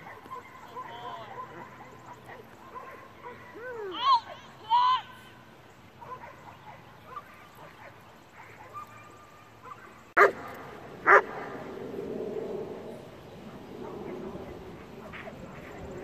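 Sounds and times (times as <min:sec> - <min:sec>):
dog barking: 0:00.0 - 0:03.6, 0:06.0 - 0:10.4, 0:11.0 - 0:11.3.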